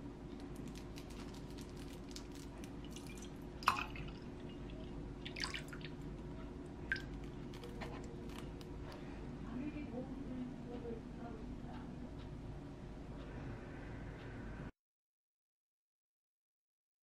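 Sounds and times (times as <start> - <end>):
liquid pouring into a mug: 2.3 - 6.0.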